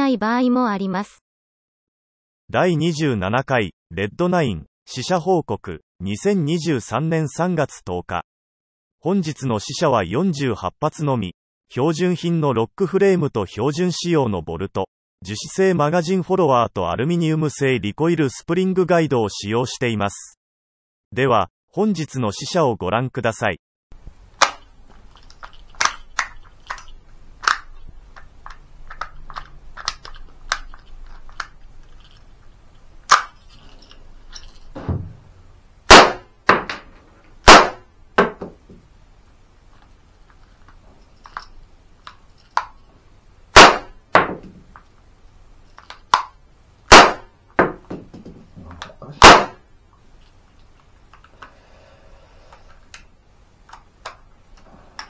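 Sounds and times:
metallic clicks of loading gun: 24.4s - 32.3s, 41.2s - 42.8s
gun action clacking: 25.2s - 27.7s, 33.1s - 34.6s
cap gun shots: 35.9s - 36.8s, 37.4s - 38.4s, 43.5s - 44.5s, 46.9s - 47.8s, 49.2s - 49.6s.

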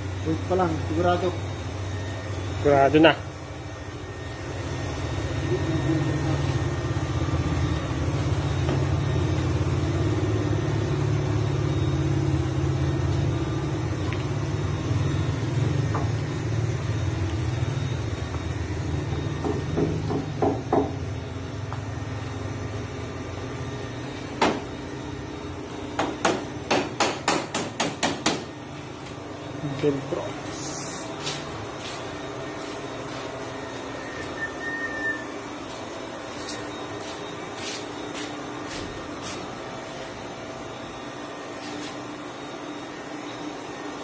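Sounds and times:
steady low hum: 0.0s - 44.0s
hammer striking wooden planks: 26.0s - 28.5s.

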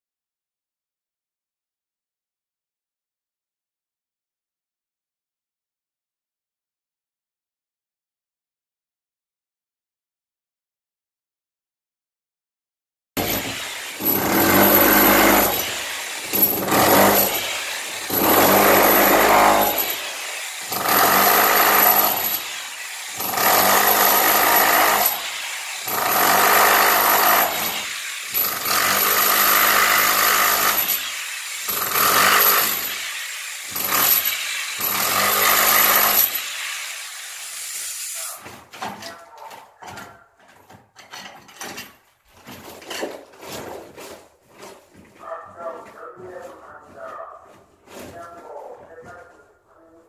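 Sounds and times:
rotary hammer pounding concrete: 13.2s - 37.2s.

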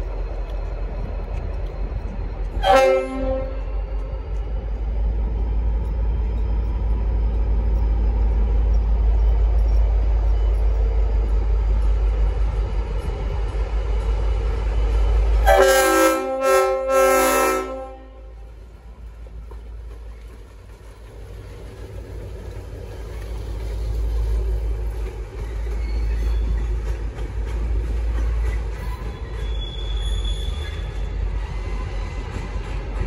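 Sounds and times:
locomotive low rumble: 0.0s - 33.0s
locomotive air horn chord: 2.6s - 3.9s, 15.4s - 18.4s.

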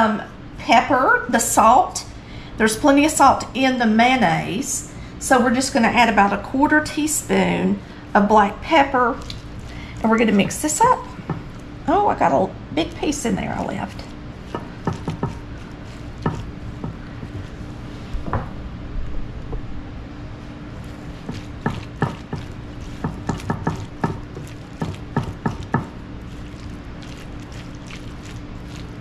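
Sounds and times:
steady low hum: 0.0s - 29.0s
spatula tapping glass bowl: 14.5s - 15.4s, 16.2s - 17.0s, 21.3s - 25.9s.

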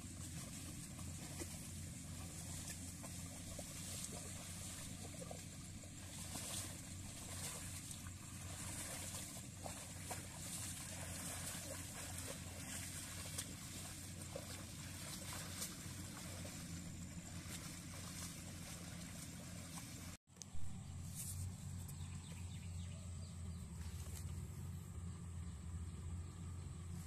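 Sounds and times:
small engine running: 0.0s - 20.2s
mud and water splashing: 0.0s - 22.7s.

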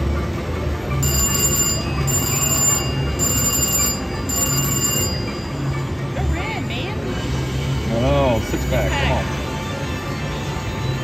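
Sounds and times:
casino background noise: 0.2s - 6.2s
slot machine electronic chime: 0.9s - 6.3s.

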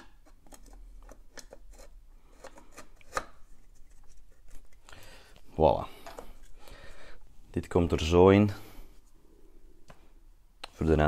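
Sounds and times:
plastic clicks and scraping: 0.0s - 4.8s.

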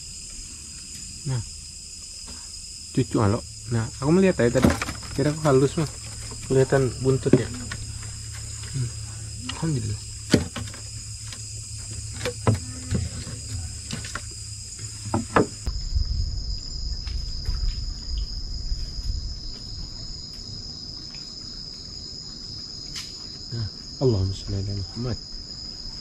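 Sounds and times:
night insects chorus: 0.0s - 26.0s
sharp knocks: 15.0s - 15.7s.

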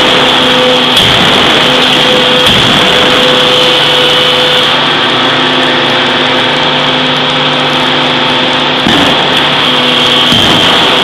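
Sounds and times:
forging hammer mechanical drone: 0.0s - 11.0s.

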